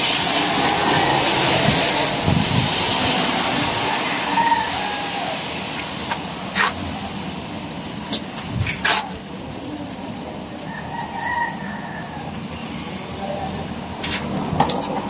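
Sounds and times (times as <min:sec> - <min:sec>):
vehicle passing: 0:00.0 - 0:07.5.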